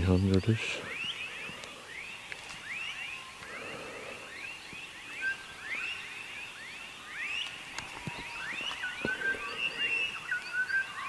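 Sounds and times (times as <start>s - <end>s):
frogs chirping: 0.0s - 11.0s.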